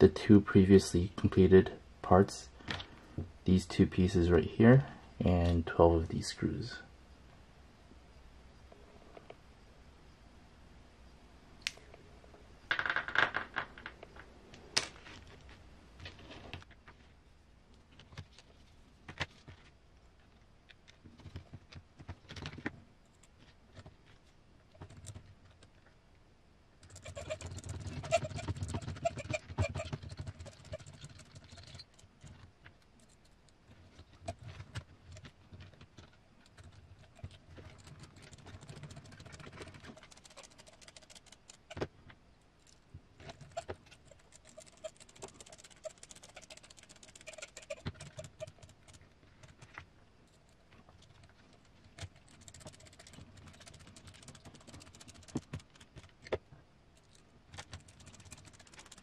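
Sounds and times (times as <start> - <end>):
rustling and rapid clicking: 17.8 - 26.0, 26.8 - 59.0
plastic parts clicking and rattling: 26.8 - 41.9, 42.6 - 56.4, 57.0 - 59.0.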